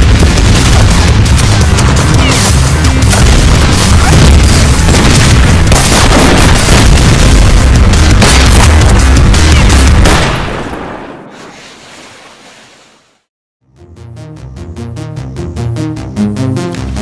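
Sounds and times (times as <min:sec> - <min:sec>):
loud action music: 0:00.0 - 0:10.2, 0:14.0 - 0:17.0
booming explosion effects: 0:00.0 - 0:11.3
film gunshots: 0:00.0 - 0:11.4.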